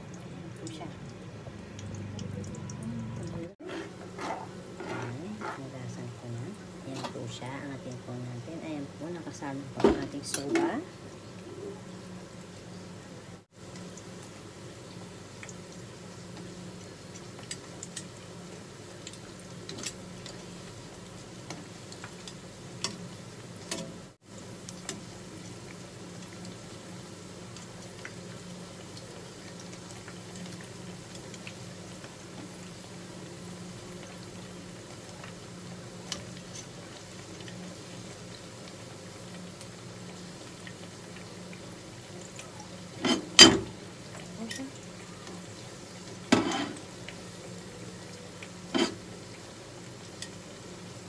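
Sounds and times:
deep-frying sizzle: 0:00.0 - 0:51.0
metal tongs clicking on pan: 0:23.7 - 0:23.9.

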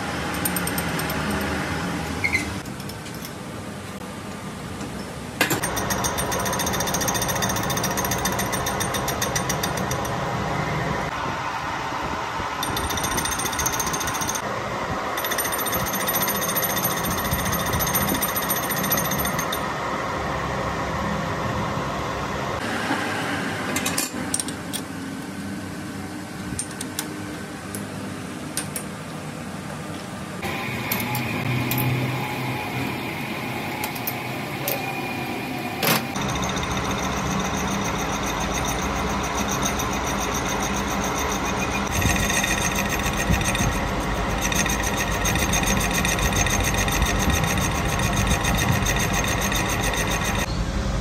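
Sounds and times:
lathe cutting rattle: 0:36.0 - 0:50.5.

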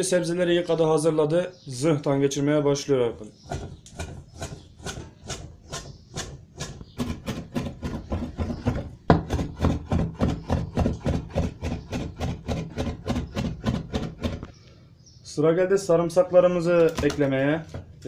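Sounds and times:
knife chopping on wooden board: 0:03.4 - 0:14.5.

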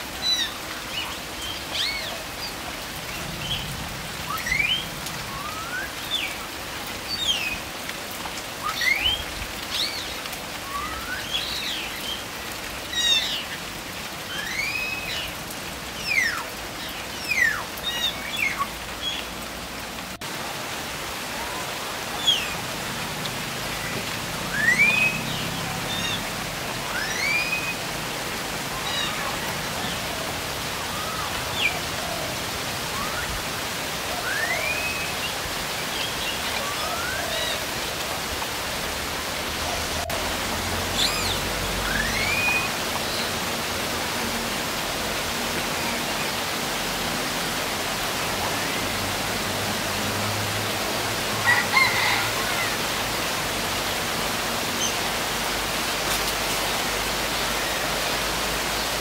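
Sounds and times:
rain hiss: 0:00.0 - 0:59.0
birds whistling calls: 0:03.2 - 0:06.4, 0:08.6 - 0:13.6, 0:14.3 - 0:15.4, 0:24.5 - 0:27.9, 0:30.8 - 0:37.7, 0:40.9 - 0:43.3.

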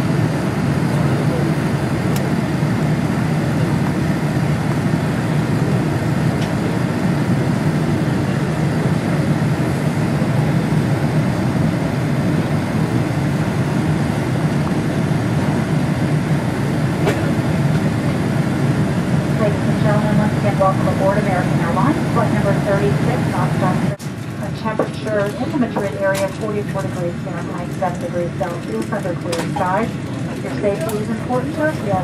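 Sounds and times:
aircraft cabin rumble and hiss: 0:00.0 - 0:32.0.

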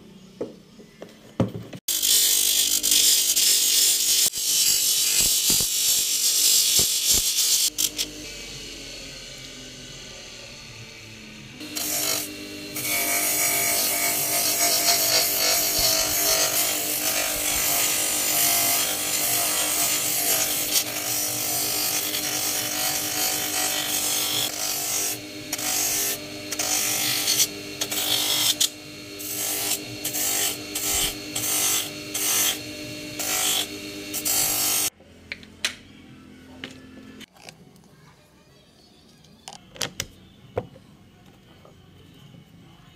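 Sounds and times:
bench grinder motor hum: 0:01.9 - 0:35.6.

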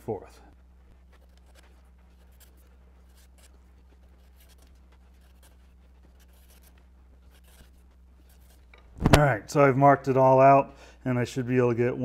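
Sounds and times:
steady low hum: 0:00.0 - 0:12.0
marker pen strokes on wood: 0:00.6 - 0:08.8.

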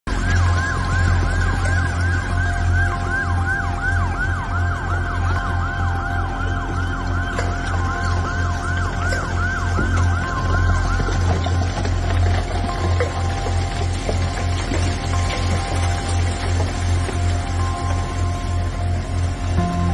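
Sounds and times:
steady held siren tone: 0:00.1 - 0:12.0, 0:15.0 - 0:19.9
fast repeating siren: 0:00.1 - 0:13.4
low hum: 0:00.1 - 0:19.9.

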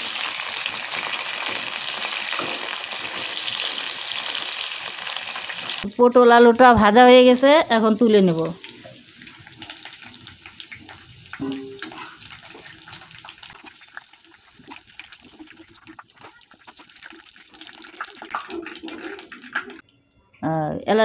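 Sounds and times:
hot oil sizzling in a wok: 0:00.0 - 0:05.9, 0:07.7 - 0:18.4.

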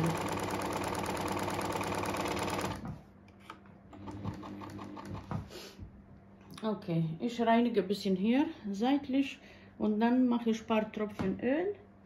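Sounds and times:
sewing machine clattering: 0:00.0 - 0:02.8.

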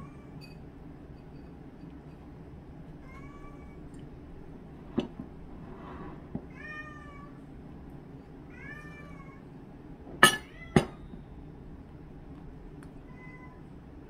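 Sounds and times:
cat meowing: 0:13.0 - 0:13.7.

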